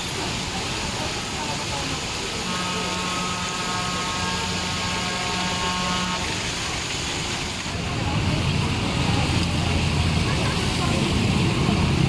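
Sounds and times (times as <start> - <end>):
heavy rain on road: 0.0 - 12.0
traffic passing through water: 0.0 - 12.0
vehicle horn: 2.4 - 6.4.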